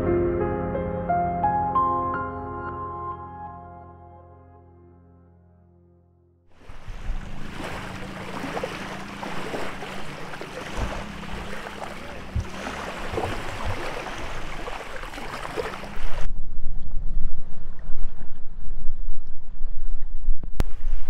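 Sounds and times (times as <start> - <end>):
small waves lapping on shore: 6.6 - 16.3
wind buffeting microphone: 6.6 - 21.0.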